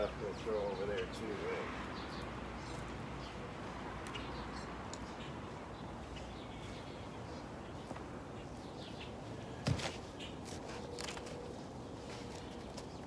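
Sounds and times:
small birds chirping: 0:00.0 - 0:13.0
steady outdoor hiss: 0:00.0 - 0:13.0
dry leaves rustling and crackling: 0:09.6 - 0:13.0.

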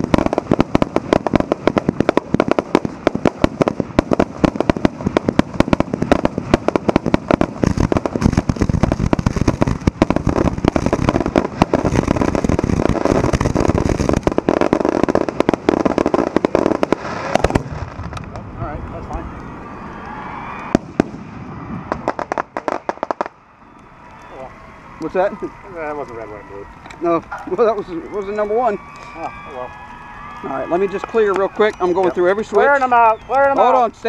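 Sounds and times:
fireworks barrage: 0:00.0 - 0:34.0.

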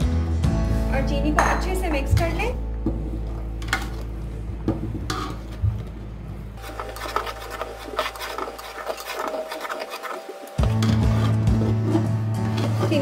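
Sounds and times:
ladle scraping bottom of pot: 0:04.8 - 0:05.6, 0:06.6 - 0:13.0.

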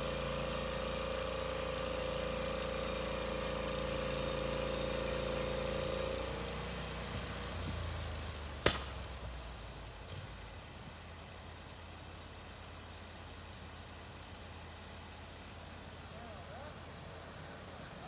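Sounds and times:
saw blade whine and hiss: 0:00.0 - 0:08.0
sawmill engine running: 0:00.0 - 0:10.6.

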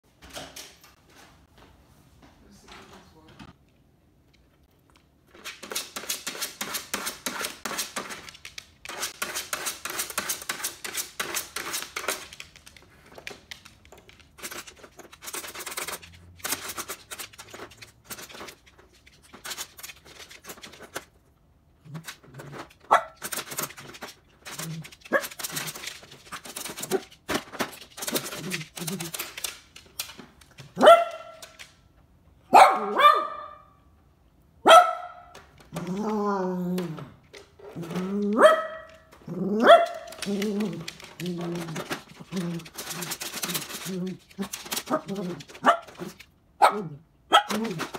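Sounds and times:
dog crunching kibble: 0:05.3 - 0:21.2, 0:21.8 - 0:31.8, 0:36.8 - 0:46.4, 0:47.4 - 0:47.9
dog barking: 0:30.8 - 0:31.4, 0:32.5 - 0:33.8, 0:34.6 - 0:35.3, 0:38.4 - 0:38.9, 0:39.5 - 0:40.1, 0:45.6 - 0:47.8.

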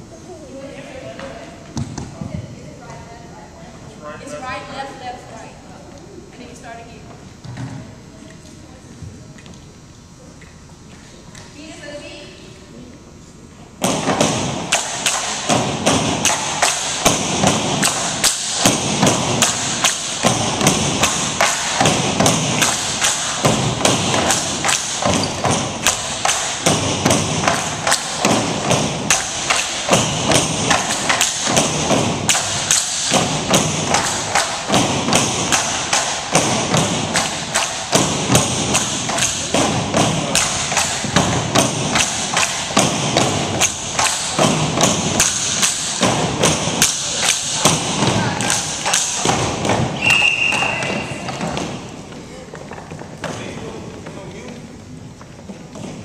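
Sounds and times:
bamboo poles knocking rhythmically: 0:13.8 - 0:52.0.

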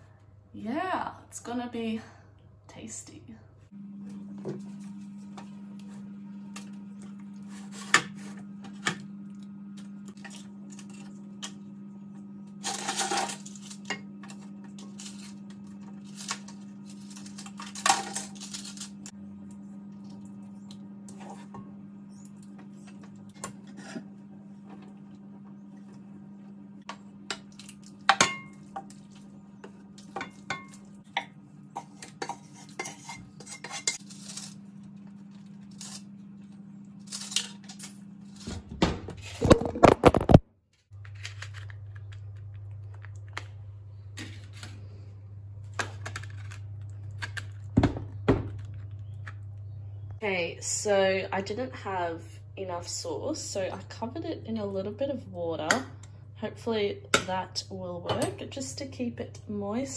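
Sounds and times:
steady low hum: 0:00.0 - 0:59.9
wooden spoon scraping a pot: 0:23.4 - 0:24.7, 0:31.7 - 0:34.6
pots and dishes clinking: 0:28.1 - 0:28.9.

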